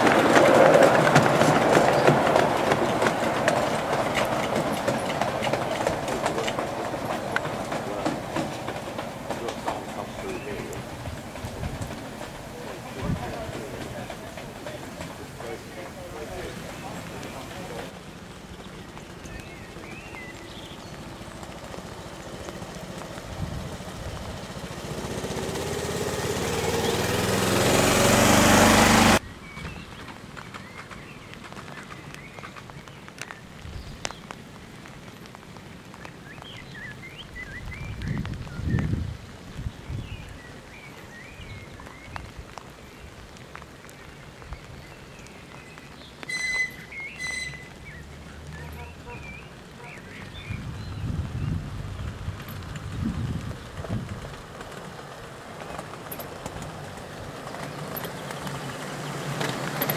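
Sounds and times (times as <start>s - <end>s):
birds chirping: 0.0s - 52.7s
miniature locomotive approaching: 0.0s - 59.9s
locomotive whistle blast: 46.3s - 47.7s.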